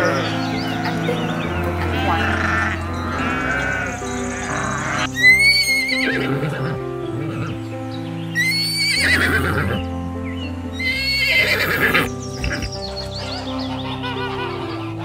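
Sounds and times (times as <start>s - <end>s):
horse whinnying: 0.0s - 7.6s, 8.4s - 9.8s, 10.8s - 13.4s
music with long held notes: 0.0s - 15.0s.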